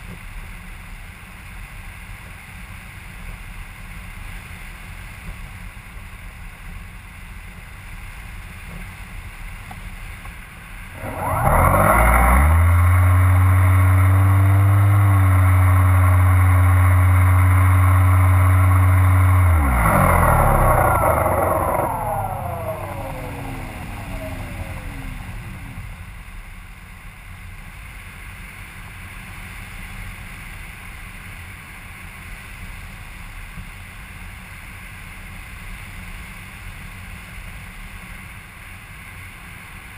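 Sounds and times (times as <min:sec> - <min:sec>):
model aircraft motor and propeller: 0:09.6 - 0:26.5.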